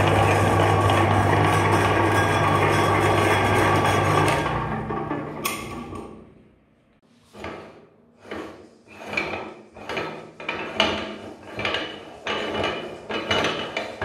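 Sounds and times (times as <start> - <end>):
meat grinder motor running down: 0.0 - 5.9.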